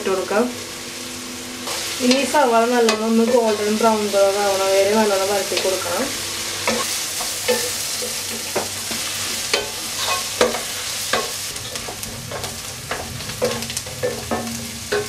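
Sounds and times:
onions sizzling in oil: 0.0s - 15.0s
spatula scraping and tapping pan: 6.6s - 15.0s.

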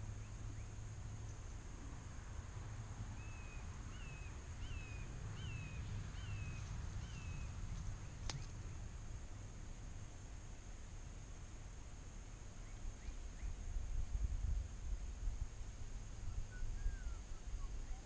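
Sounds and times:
faint low rumble: 0.0s - 18.0s
bird whistling notes: 16.3s - 18.0s.

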